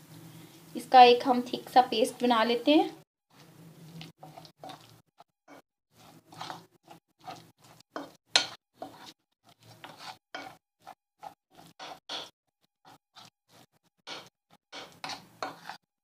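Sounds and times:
spoon stirring thick paste: 3.3s - 15.9s.

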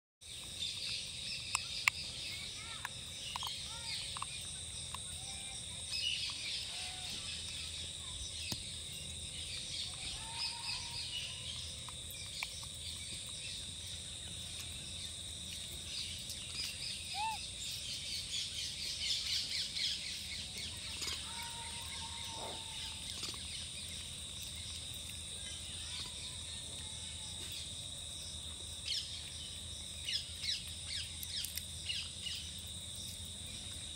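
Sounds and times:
birds chirping: 0.2s - 27.6s
high insect drone: 0.3s - 33.9s
short whistled calls: 17.0s - 17.5s.

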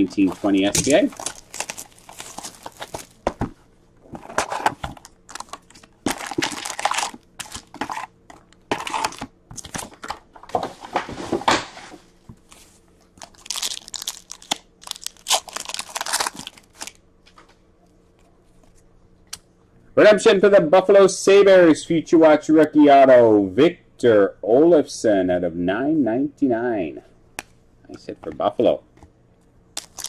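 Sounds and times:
shrink wrap crinkling: 0.0s - 3.3s, 4.3s - 10.0s, 12.4s - 17.0s, 29.8s - 30.0s
foil pack tearing: 0.4s - 3.2s, 5.3s - 8.1s, 13.2s - 17.0s, 29.8s - 30.0s.

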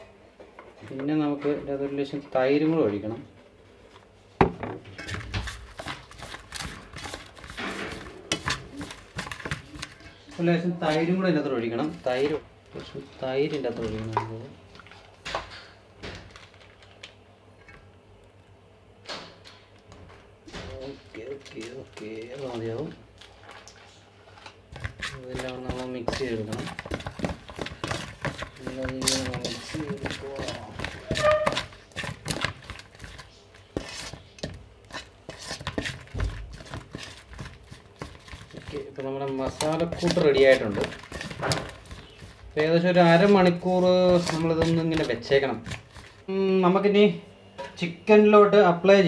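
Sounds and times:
hand squishing wet marinade: 24.8s - 46.3s.

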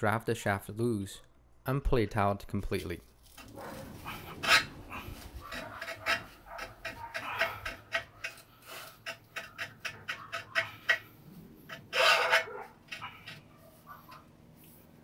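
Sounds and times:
metal scraping and squeaking: 3.2s - 14.8s.

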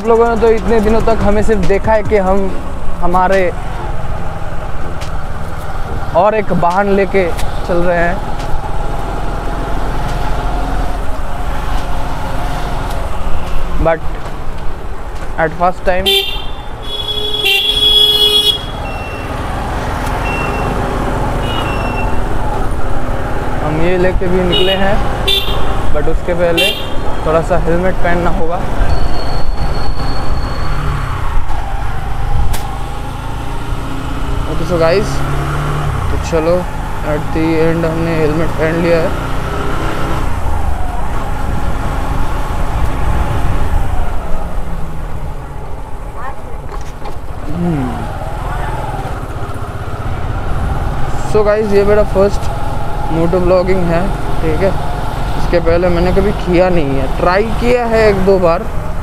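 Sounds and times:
motorcycle engine rumbling: 0.0s - 39.6s, 40.2s - 59.0s
road traffic noise: 0.0s - 59.0s
vehicle horn honking: 16.0s - 19.3s, 21.4s - 22.2s, 24.5s - 25.8s.

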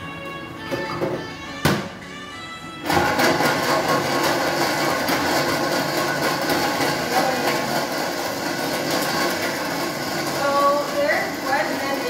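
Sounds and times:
blender churning ice: 2.8s - 12.0s.

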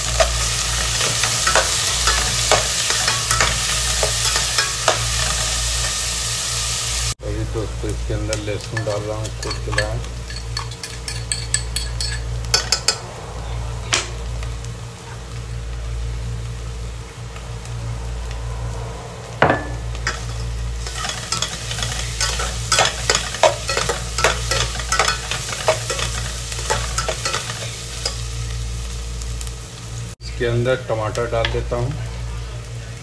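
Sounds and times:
onion and garlic frying in oil: 0.0s - 33.0s
fork scraping and clinking on pot: 0.2s - 5.4s, 8.7s - 13.0s, 19.6s - 28.2s
steady low hum: 7.2s - 31.2s.

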